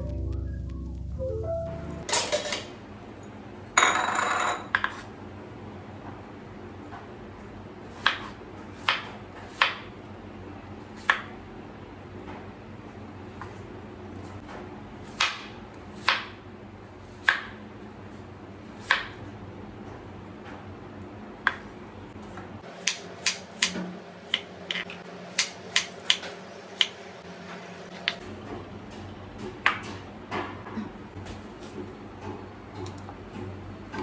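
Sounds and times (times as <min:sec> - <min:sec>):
low steady hum: 0:00.0 - 0:03.8.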